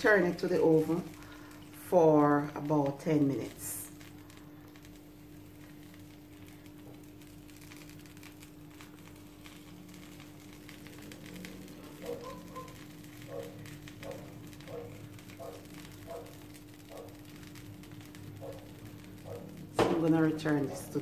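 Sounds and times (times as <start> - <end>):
steady low hum: 0.0 - 21.0
sauce trickling: 3.9 - 19.8.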